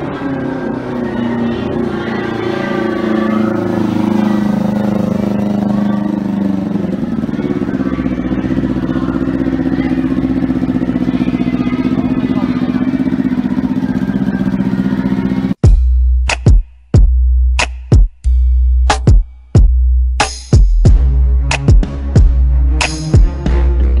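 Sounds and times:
motorcycle engine idling: 0:00.0 - 0:15.8.

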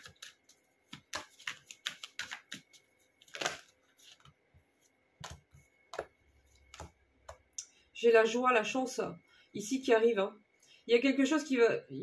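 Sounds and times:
cards being shuffled: 0:00.0 - 0:04.4, 0:05.2 - 0:06.9.

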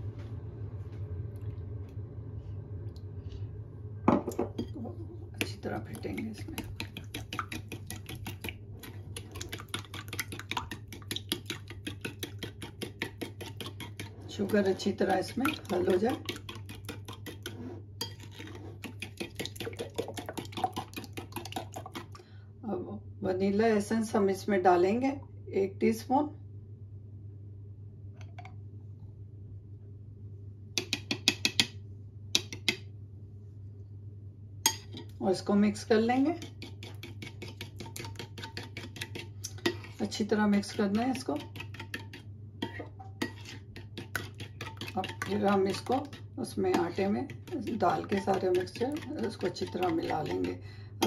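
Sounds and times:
faint steady hum: 0:00.0 - 0:51.0
metal spoon beating in ceramic bowl: 0:30.8 - 0:31.8, 0:36.4 - 0:39.9, 0:40.6 - 0:50.6
spoon clinking on ceramic bowl: 0:34.7 - 0:35.1.

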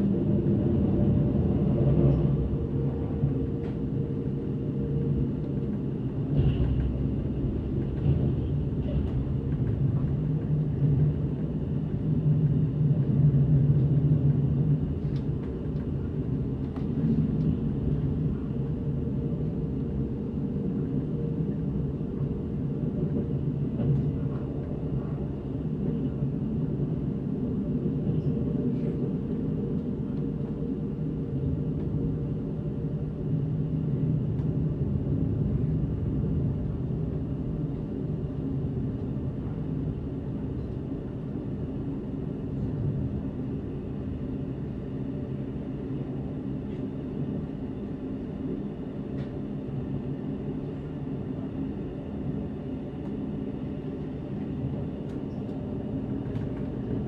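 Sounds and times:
train rumble inside carriage: 0:00.0 - 0:57.0.

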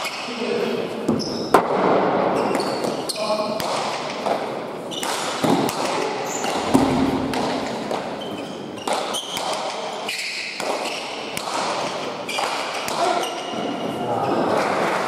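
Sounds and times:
ball cracking off walls echoing: 0:01.0 - 0:08.2, 0:08.8 - 0:15.0
shoe squeaks: 0:01.1 - 0:01.6, 0:02.3 - 0:03.5, 0:04.9 - 0:05.3, 0:06.2 - 0:06.7, 0:08.1 - 0:11.4, 0:12.2 - 0:14.0
murmur of spectators: 0:13.0 - 0:15.0.

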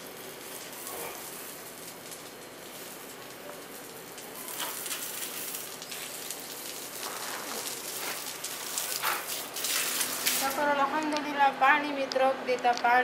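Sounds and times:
hose water spraying on dirt: 0:00.0 - 0:10.8.

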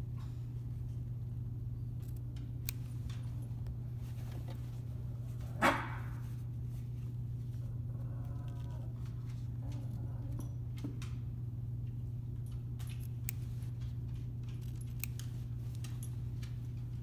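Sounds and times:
steady low hum: 0:00.0 - 0:17.0
scissors snipping fabric: 0:14.6 - 0:15.8.

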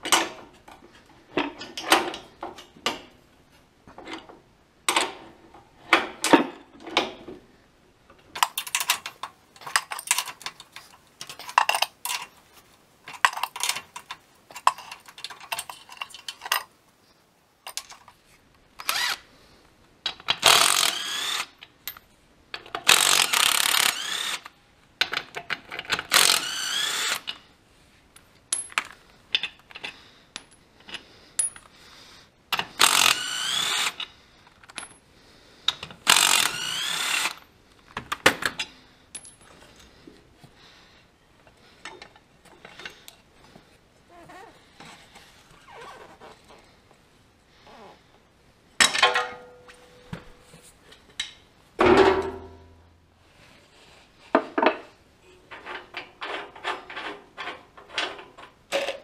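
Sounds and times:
wrench clinking on bolt: 0:08.4 - 0:12.3.

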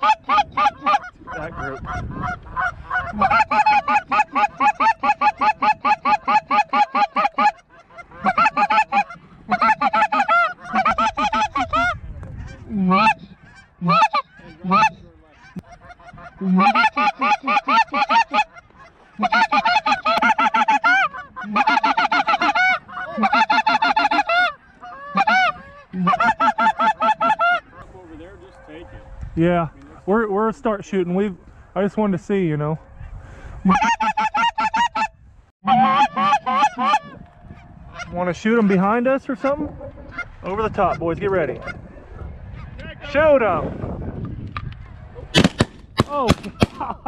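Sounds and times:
goose call honks: 0:00.0 - 0:27.8, 0:33.7 - 0:40.3.

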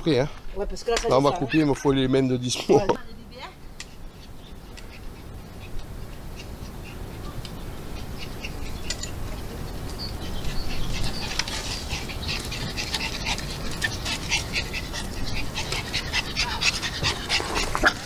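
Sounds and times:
dog panting: 0:04.0 - 0:18.0.

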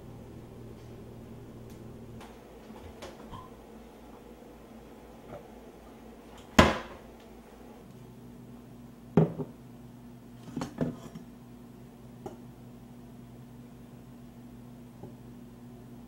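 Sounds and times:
ceramic mug set on countertop: 0:02.8 - 0:04.2, 0:09.2 - 0:09.6, 0:10.4 - 0:11.3.

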